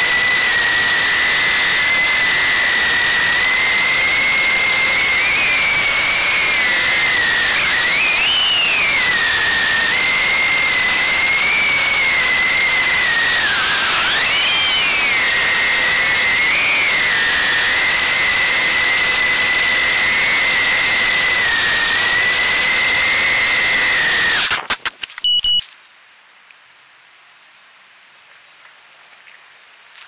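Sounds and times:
drone motors whining: 0:00.0 - 0:25.6
short tone: 0:25.2 - 0:25.7.

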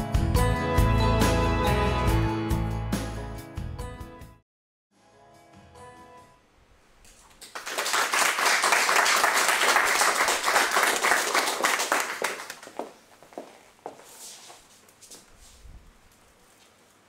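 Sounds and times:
audience applauding: 0:07.4 - 0:12.9.

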